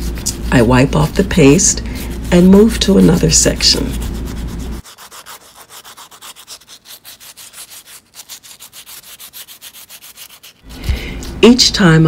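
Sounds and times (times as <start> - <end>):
sandpaper rasping on wet stone: 1.5 - 10.8.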